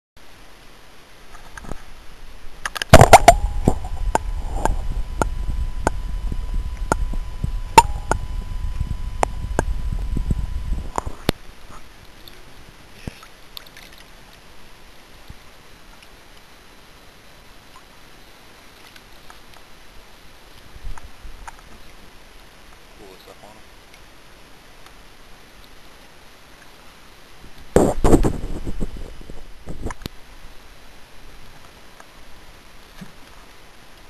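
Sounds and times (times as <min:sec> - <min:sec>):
water sloshing and gurgling: 0:01.3 - 0:14.6
heavy low rumble: 0:02.3 - 0:11.4.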